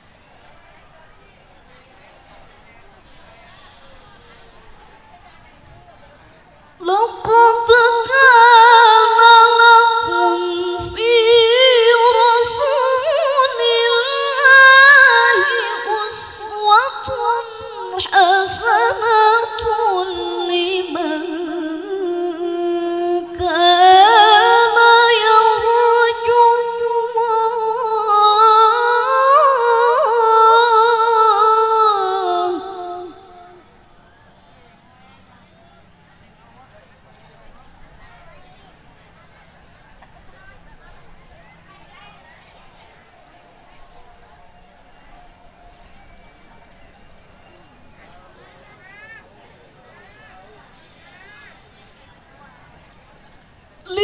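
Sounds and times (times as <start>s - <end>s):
woman reciting melodically: 6.7s - 33.9s.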